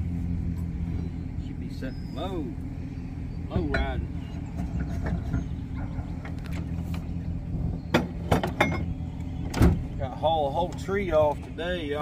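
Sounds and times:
engine idling: 0:00.0 - 0:12.0
metal clanks of trailer hitch: 0:03.5 - 0:07.0, 0:07.9 - 0:09.8.

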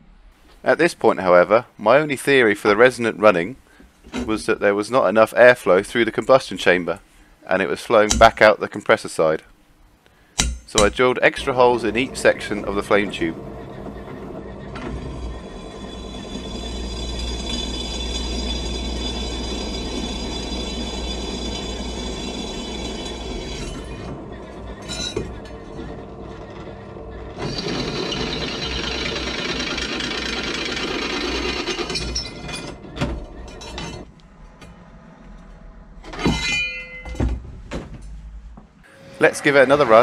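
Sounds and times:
drill press drilling steel: 0:10.8 - 0:34.0.

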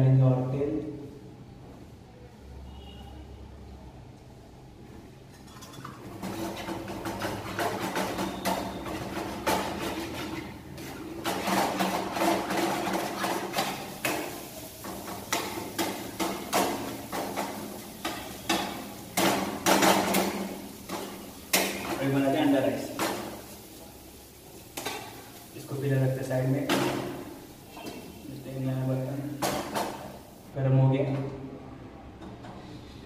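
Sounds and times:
steel spatula scraping frying pan: 0:05.3 - 0:23.7.

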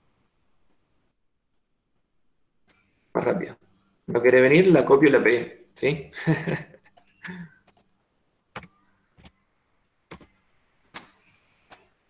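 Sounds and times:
keyboard and mouse clicks: 0:06.9 - 0:07.9, 0:08.5 - 0:09.4, 0:10.1 - 0:11.9.

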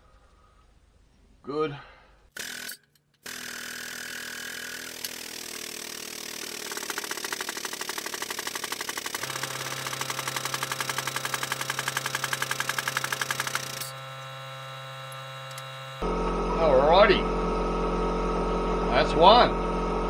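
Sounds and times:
hydraulic pump hissing and pumping: 0:02.4 - 0:16.1
steady low hum: 0:10.6 - 0:20.0.

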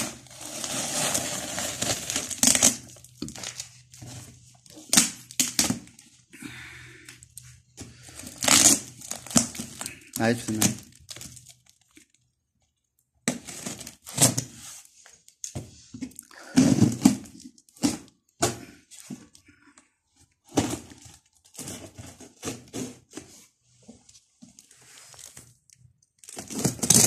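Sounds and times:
packing tape scraping and tearing: 0:00.0 - 0:04.1, 0:08.1 - 0:11.4, 0:13.3 - 0:14.6, 0:26.2 - 0:27.0.

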